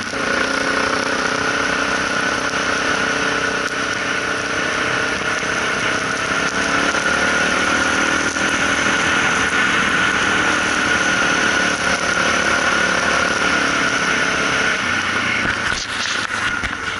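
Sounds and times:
constant rushing noise: 0.0s - 16.9s
motorcycle engine running: 0.0s - 16.9s.

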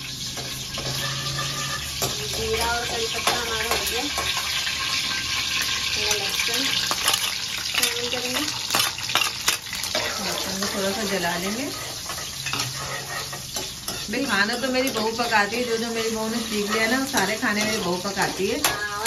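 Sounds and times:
garlic sizzling in oil: 0.0s - 19.0s
metal ladle scraping pan: 0.3s - 19.0s.

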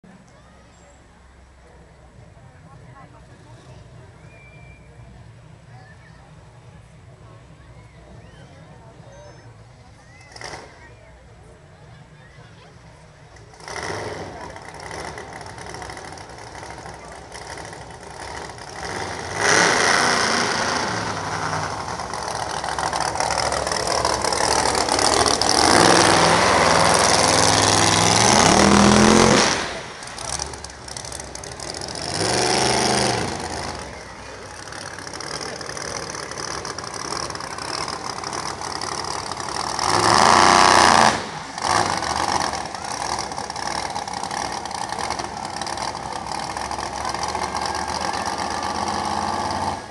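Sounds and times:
monster truck engine revving: 10.1s - 11.0s, 12.7s - 49.9s.

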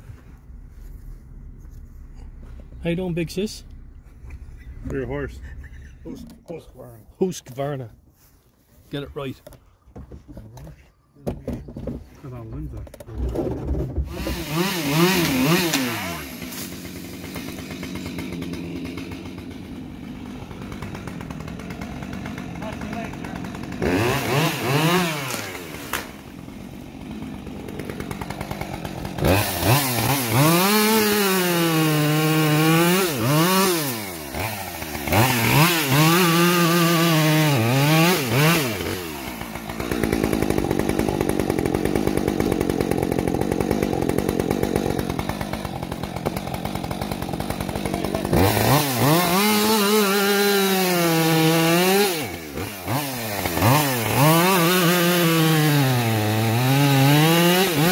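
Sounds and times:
chainsaw cutting log: 12.8s - 57.9s.

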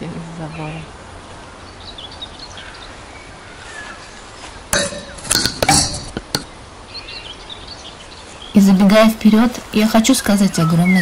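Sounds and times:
faint birds chirping: 0.0s - 11.0s
clinking and rustling: 4.8s - 6.5s.

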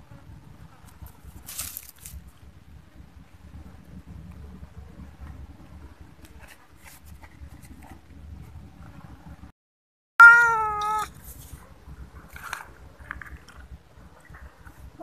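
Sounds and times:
faint low rumble: 0.0s - 9.5s, 10.5s - 15.0s
cat meowing: 10.2s - 11.1s.

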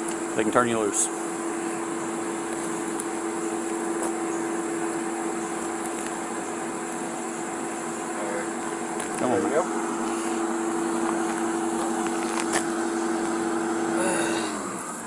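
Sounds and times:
motor hum with hiss: 0.0s - 15.0s.

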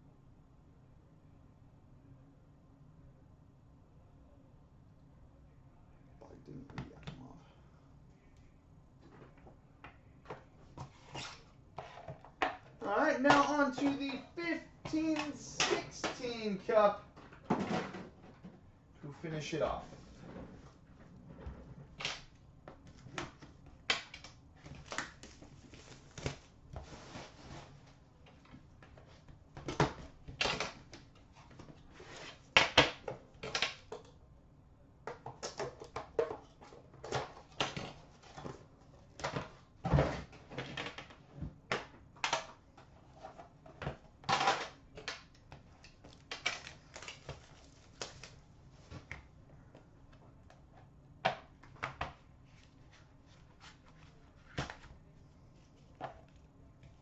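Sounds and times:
plastic wrap crinkling and tearing: 46.1s - 48.4s.

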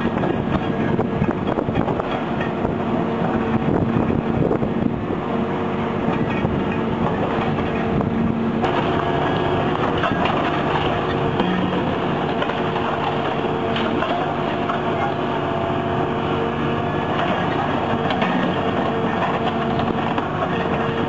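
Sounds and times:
excavator engine and hydraulics: 0.0s - 21.0s
concrete cracking and crunching: 8.6s - 15.3s.

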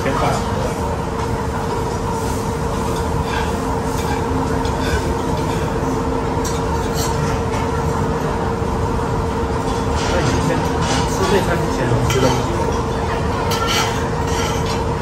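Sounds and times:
steady rumbling hum: 0.0s - 15.0s
cutlery clinking on plates: 2.9s - 5.8s, 6.4s - 7.8s, 9.6s - 15.0s.

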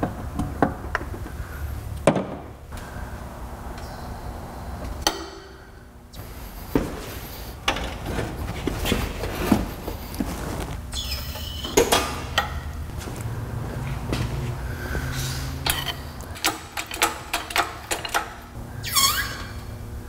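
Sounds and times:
metallic clanks and knocks: 15.6s - 18.4s.

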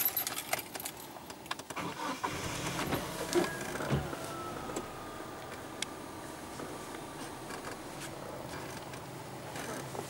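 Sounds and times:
car engine starting and running: 0.4s - 10.0s
faint falling whine: 2.9s - 8.8s.

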